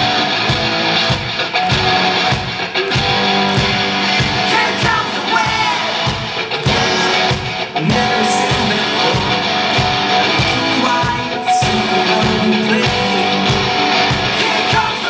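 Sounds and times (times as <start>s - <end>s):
electric guitar: 0.0s - 15.0s
live rock band playing: 0.0s - 15.0s
man singing: 4.4s - 9.6s, 10.2s - 15.0s.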